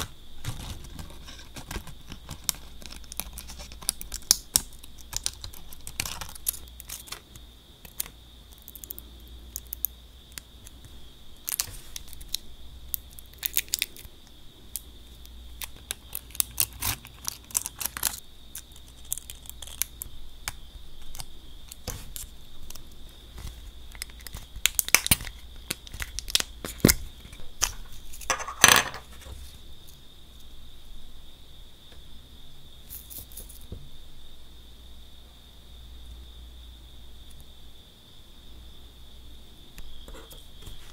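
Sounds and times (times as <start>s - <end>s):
foil crinkling and crackling: 0.0s - 7.3s, 15.6s - 28.3s
scissors snipping foil: 18.8s - 20.0s.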